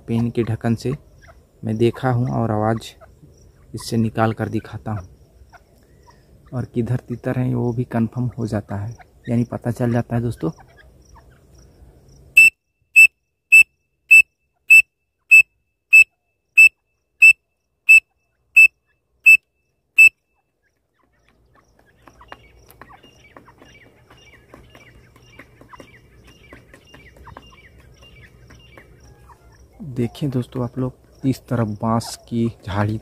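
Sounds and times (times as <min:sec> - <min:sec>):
faint chirps and ticks: 0:00.1 - 0:33.0
high-pitched whistle blasts: 0:12.4 - 0:18.0.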